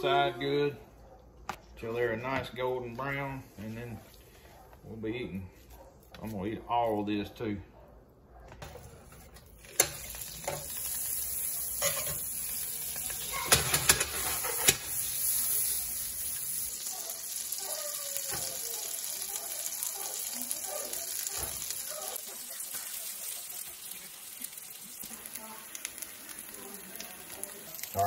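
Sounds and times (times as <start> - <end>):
butter sizzling in a skillet: 9.5 - 28.0.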